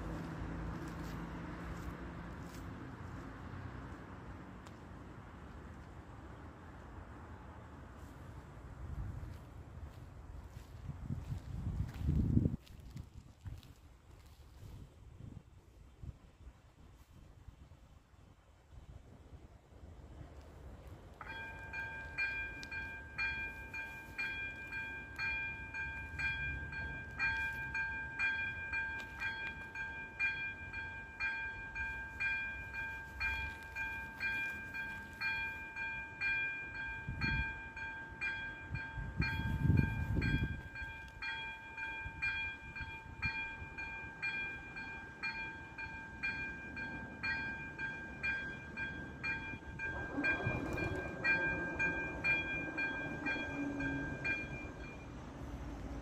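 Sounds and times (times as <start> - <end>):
level crossing warning bell dinging: 21.2 - 55.5.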